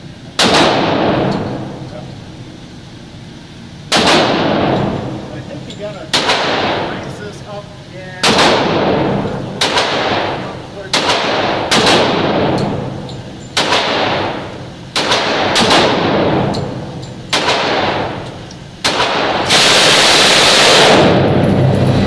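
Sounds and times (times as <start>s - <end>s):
gunshots echoing indoors: 0.3s - 1.8s, 3.9s - 5.3s, 6.1s - 7.2s, 8.2s - 21.8s
machine gun burst: 8.2s - 12.8s, 15.0s - 16.5s, 17.3s - 18.2s, 18.8s - 22.0s.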